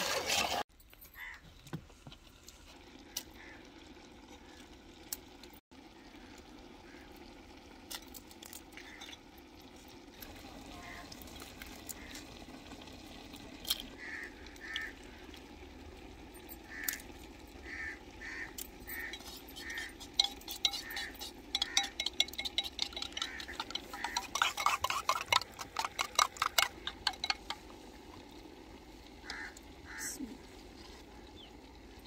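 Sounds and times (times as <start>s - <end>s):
spoon beating eggs in bowl: 19.0s - 27.6s.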